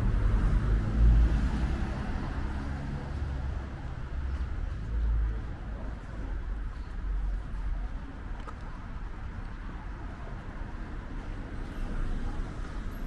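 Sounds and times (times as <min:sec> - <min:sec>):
low traffic rumble: 0:00.0 - 0:13.0.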